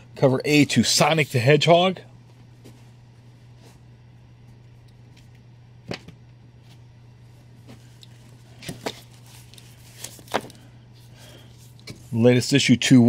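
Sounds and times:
steady low hum: 0.0 - 13.0
comic books slapping in box: 8.5 - 10.6.

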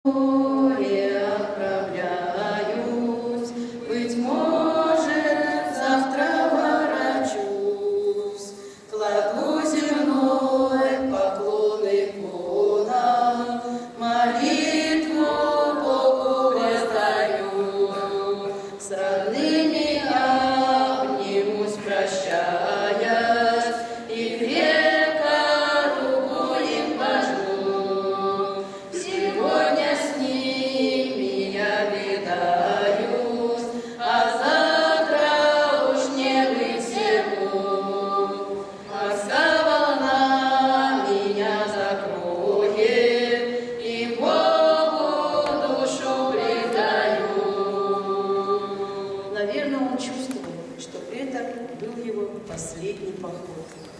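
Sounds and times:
choir singing a cappella: 0.0 - 50.8.

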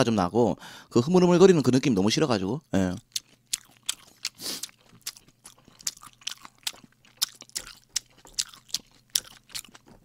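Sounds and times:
wet chewing mouth clicks: 3.1 - 10.0.

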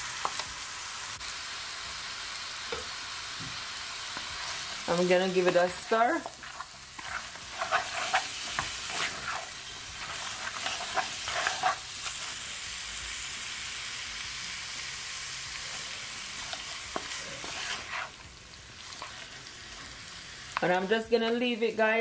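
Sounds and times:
meat sizzling in oil: 0.0 - 22.0
spatula scraping pan: 4.1 - 12.4, 15.6 - 19.9.

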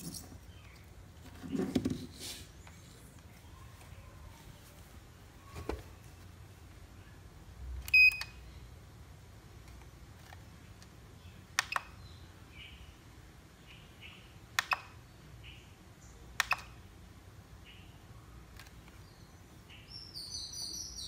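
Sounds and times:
transmitter switch clicks: 11.6 - 12.0, 14.6 - 15.0, 16.4 - 16.8.

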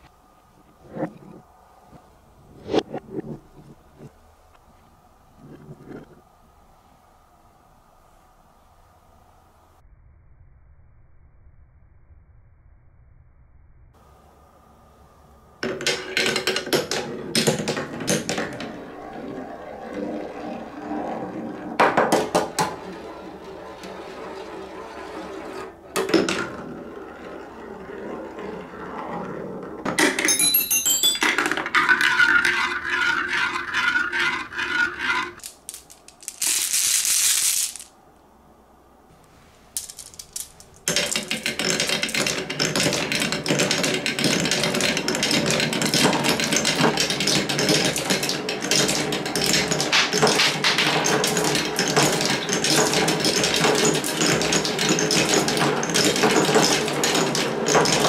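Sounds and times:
marbles rolling and clattering: 15.6 - 38.0, 39.6 - 58.0.

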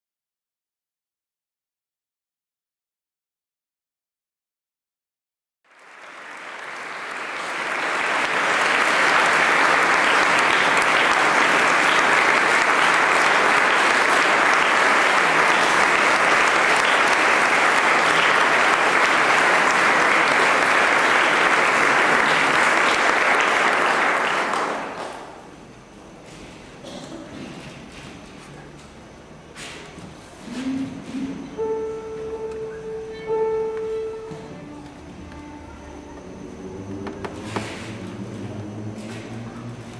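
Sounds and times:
audience applauding: 5.7 - 25.6.

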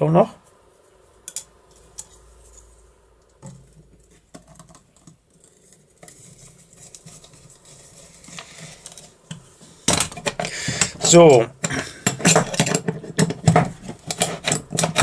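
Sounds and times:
screwdriver scraping screw into metal: 12.1 - 15.0.

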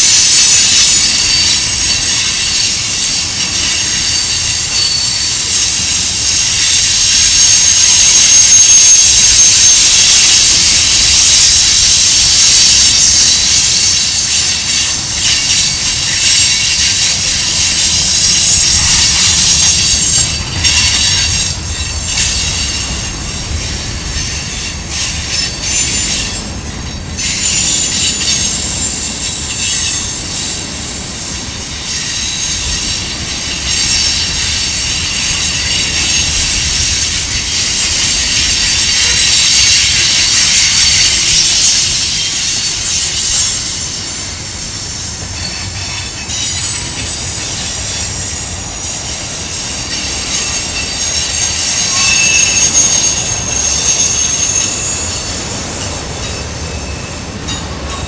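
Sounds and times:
train wheels squealing on rails: 0.0 - 58.0.

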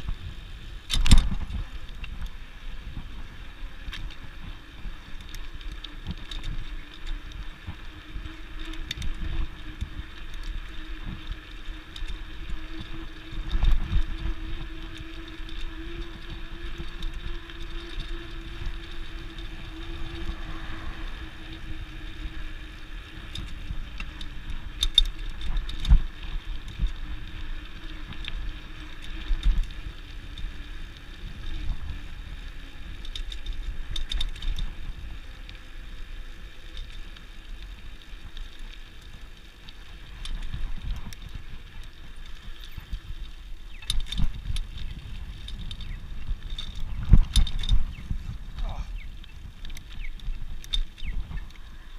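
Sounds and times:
bicycle tyre rumble on concrete: 0.0 - 51.9
wind noise on microphone: 0.0 - 51.9.

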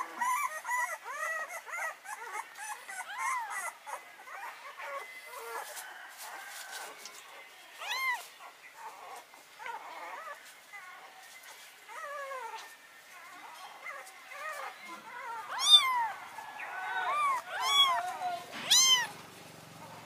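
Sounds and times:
kitten mewing: 15.5 - 16.0, 18.6 - 19.1.

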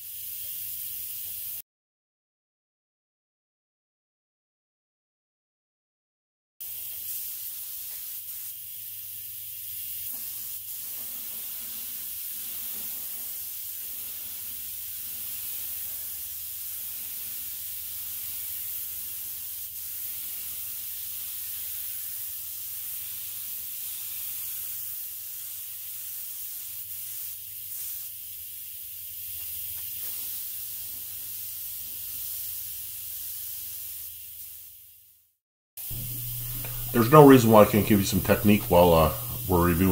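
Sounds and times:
spray gun hissing: 0.0 - 1.6, 6.6 - 35.2, 35.8 - 39.9
low steady hum: 35.9 - 39.9.

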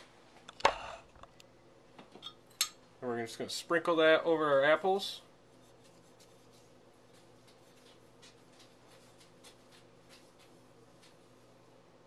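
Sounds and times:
dry mix sprinkling on apples: 5.4 - 11.5.

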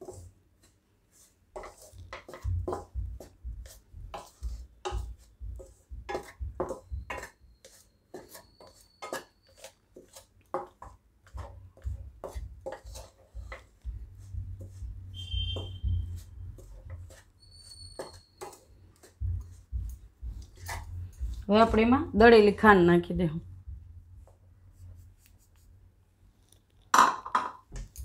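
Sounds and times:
metal spoon scraping a pan: 1.1 - 19.2.

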